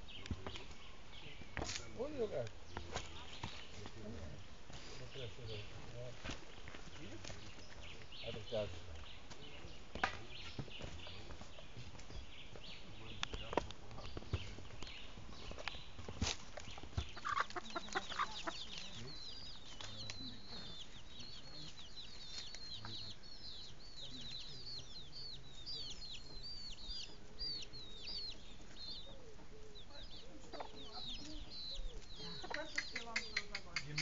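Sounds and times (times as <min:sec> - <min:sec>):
chicks peeping: 0:00.0 - 0:34.0
hen clucking: 0:16.6 - 0:34.0.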